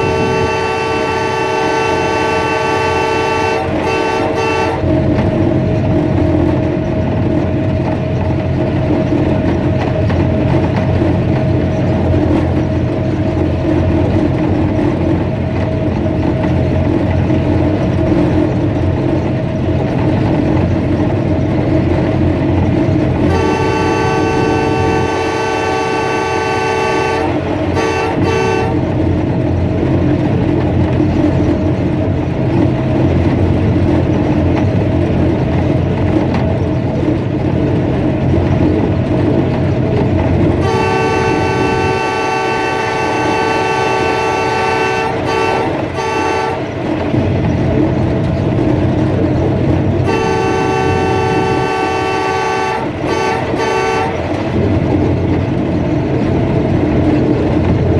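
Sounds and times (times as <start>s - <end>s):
locomotive air horn blasts: 0.0s - 5.2s, 23.2s - 29.0s, 40.5s - 46.9s, 50.0s - 54.5s
locomotive engine running: 0.0s - 57.9s
train wheels on track: 0.0s - 57.9s.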